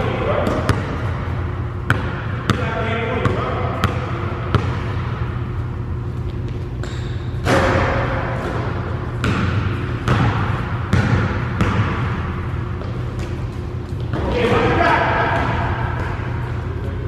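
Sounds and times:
steady low hum: 0.0s - 17.0s
basketball bouncing on wooden floor: 1.9s - 5.2s, 6.3s - 14.2s, 15.3s - 16.3s.

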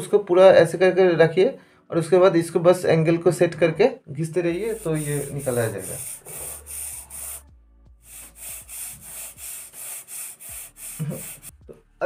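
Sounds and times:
sandpaper rasping on foam: 4.6s - 11.6s.

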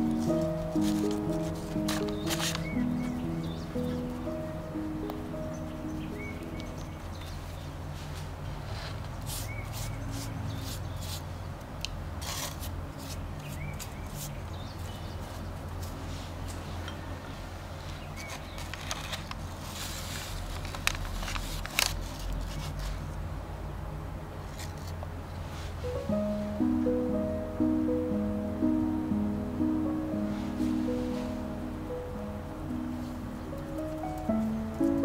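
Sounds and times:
pastry brush stroking: 0.0s - 4.5s, 5.4s - 11.3s, 30.2s - 31.8s
steady low hum: 0.0s - 9.3s, 23.0s - 35.0s.

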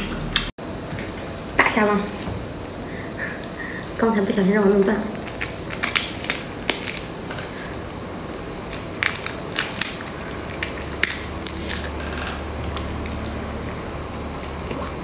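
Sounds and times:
steady low hum: 0.0s - 15.0s
prawn shell cracking: 5.2s - 7.5s, 8.6s - 13.3s.

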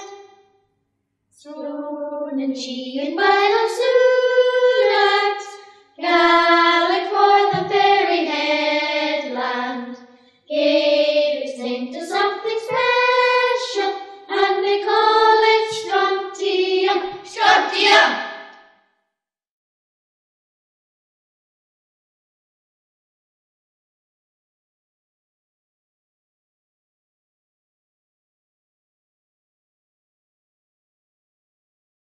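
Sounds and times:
choir singing: 0.0s - 0.2s, 1.4s - 18.5s.

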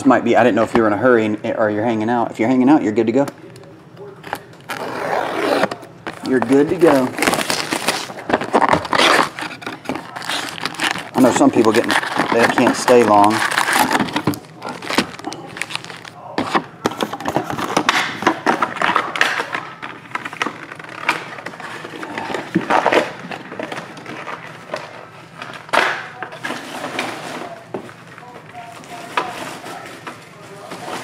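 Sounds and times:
foil packs crinkling: 4.0s - 31.0s.

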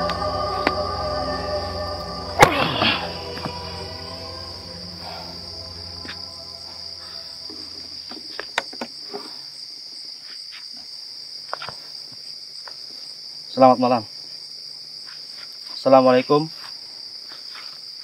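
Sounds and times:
background music: 0.0s - 8.3s
crickets chirping: 0.0s - 18.0s.

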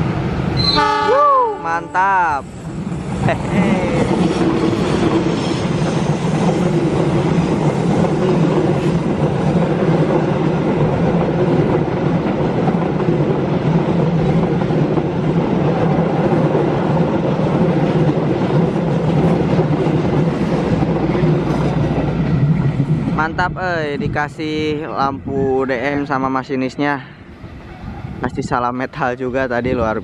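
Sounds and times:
train wheels rumbling on rails: 2.1s - 30.0s
wheels clickety-clack: 3.5s - 23.0s.

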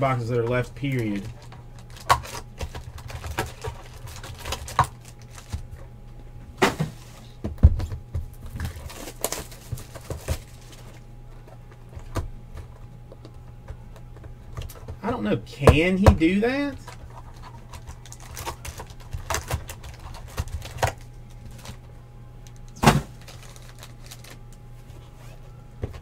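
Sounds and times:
low steady hum: 0.0s - 26.0s
wrapping rustling: 0.5s - 5.8s, 8.4s - 11.5s, 16.8s - 21.8s, 23.1s - 25.5s
card boxes tapping and knocking: 15.6s - 21.0s.

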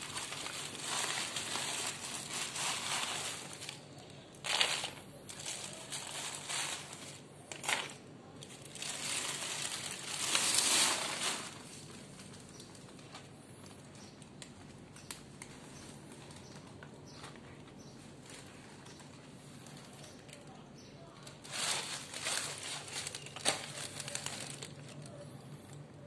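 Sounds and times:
dry cat food crunching: 0.0s - 17.5s, 21.2s - 25.9s
plastic food bag crinkling: 0.0s - 20.5s, 21.2s - 26.0s.

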